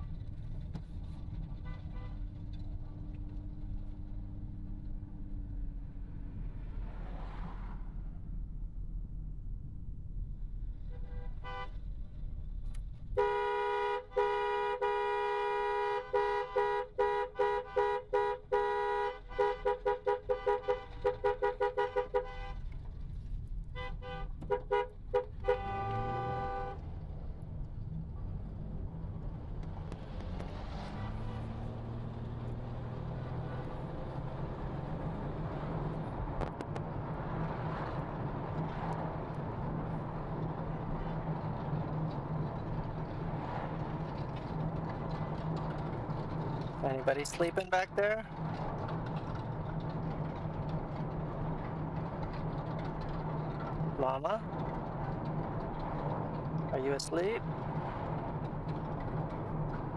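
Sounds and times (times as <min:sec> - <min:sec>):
road noise inside car: 0:00.0 - 0:59.9
two-tone car horn honking: 0:10.8 - 0:11.8, 0:13.2 - 0:22.7, 0:23.8 - 0:26.9, 0:30.9 - 0:31.8
car engine accelerating: 0:25.0 - 0:59.9.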